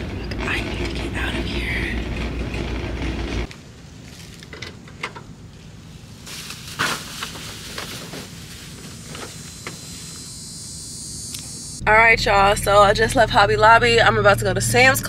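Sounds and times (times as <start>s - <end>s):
steady rattling rumble: 0.0s - 10.3s, 11.6s - 15.0s
shopping bags knocking and rustling: 6.5s - 9.4s.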